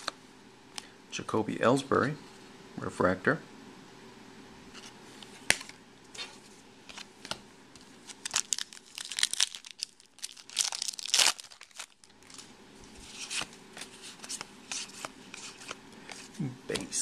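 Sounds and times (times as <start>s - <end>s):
foil wrapper tearing and crinkling: 8.1s - 12.5s.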